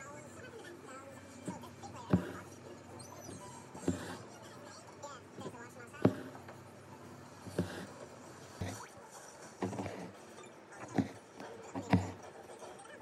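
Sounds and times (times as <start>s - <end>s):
needle punching through fabric: 1.5s - 2.5s, 3.3s - 4.3s, 5.4s - 6.5s, 7.4s - 8.9s, 9.6s - 10.2s, 10.8s - 12.3s.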